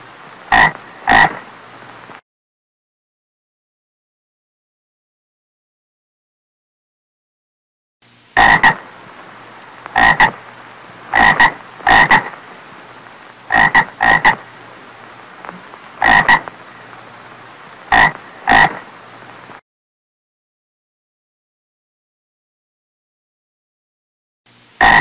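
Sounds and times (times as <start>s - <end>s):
toad croaking: 0.5s - 1.5s, 8.4s - 8.9s, 9.9s - 10.4s, 11.1s - 12.4s, 13.5s - 14.5s, 15.4s - 16.6s, 17.9s - 18.9s, 24.8s - 25.0s
faint background hum: 8.0s - 19.6s.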